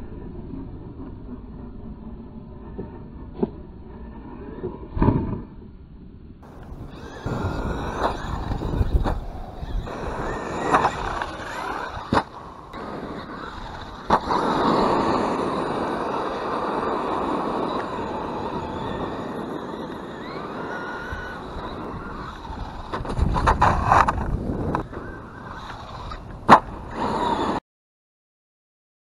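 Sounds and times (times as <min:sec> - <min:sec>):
electric motor whining: 0:06.4 - 0:27.6
tyres rolling on gravel: 0:06.4 - 0:27.6.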